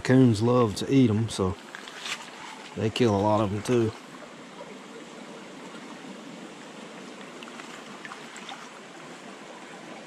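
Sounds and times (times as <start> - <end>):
creek water running over rocks: 0.0 - 10.0.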